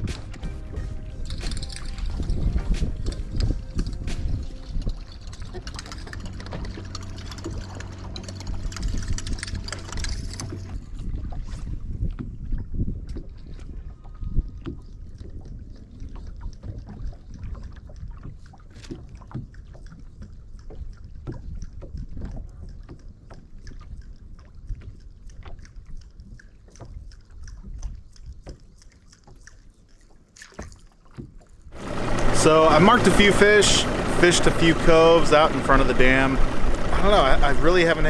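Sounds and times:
wind on microphone: 0.0s - 6.7s, 8.3s - 18.7s
water lapping against boat hull: 0.0s - 38.0s
small irregular ticks and knocks: 1.2s - 10.8s, 12.1s - 31.6s.

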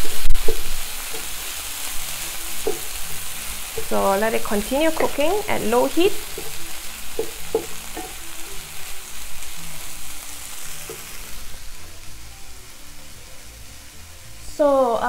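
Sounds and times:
food sizzling in a frying pan: 0.0s - 15.0s
wooden spatula knocking a pan: 2.6s - 3.0s, 3.8s - 8.6s.

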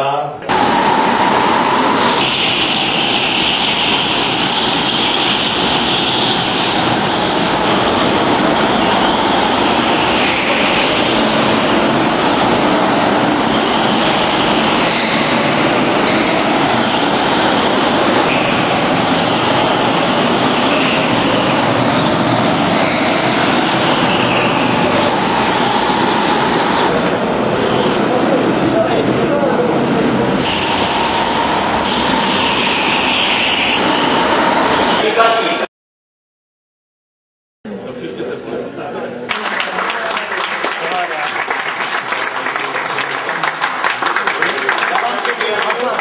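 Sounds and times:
go-kart engines revving: 0.4s - 35.6s.

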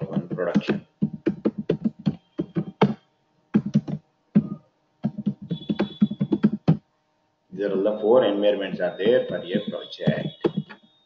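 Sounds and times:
typing on computer keyboard: 0.0s - 3.0s, 3.6s - 6.8s.

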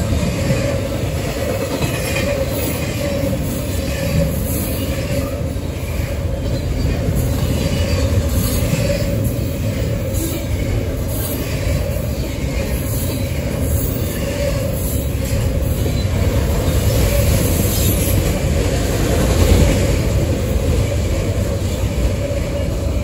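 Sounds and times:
freight train rumbling past: 0.0s - 23.0s.

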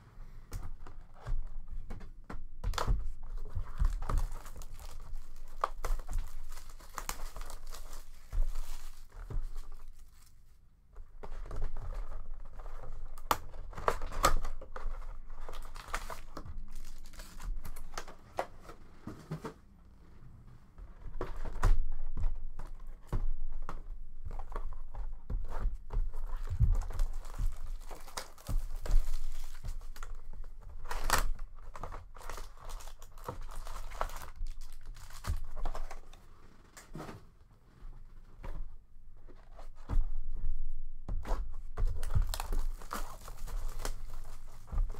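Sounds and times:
plastic wrap crinkling: 2.8s - 10.5s, 11.2s - 18.9s, 24.3s - 36.8s, 41.8s - 44.9s.

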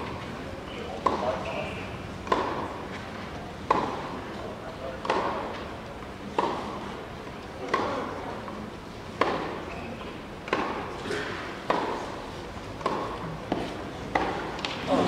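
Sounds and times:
tennis ball hit by rackets: 1.0s - 1.4s, 2.2s - 2.8s, 3.7s - 4.1s, 5.0s - 5.5s, 6.3s - 6.8s, 7.6s - 8.1s, 9.2s - 9.6s, 10.4s - 12.2s, 12.8s - 14.9s.

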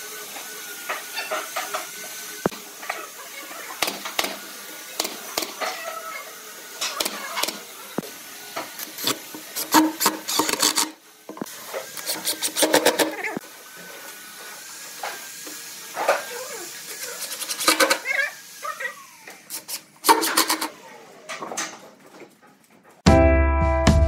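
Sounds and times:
nail gun firing: 20.0s - 20.7s.

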